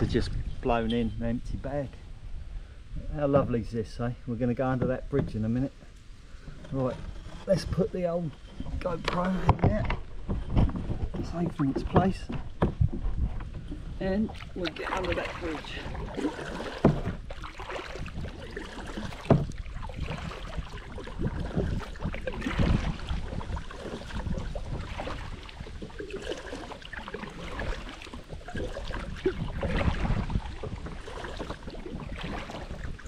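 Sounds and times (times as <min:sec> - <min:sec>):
paddle splashing through water: 0:08.4 - 0:33.0.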